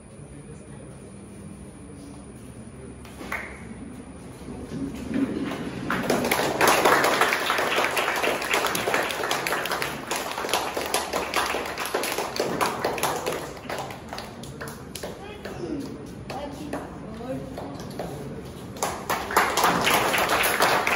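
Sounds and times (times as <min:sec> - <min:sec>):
group clapping: 0:03.1 - 0:03.7, 0:05.0 - 0:20.9.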